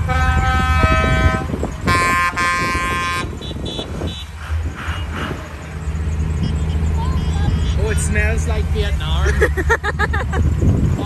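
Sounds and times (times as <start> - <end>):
vehicle horn blast: 0.0 - 5.2
vehicle engine hum: 0.0 - 11.0.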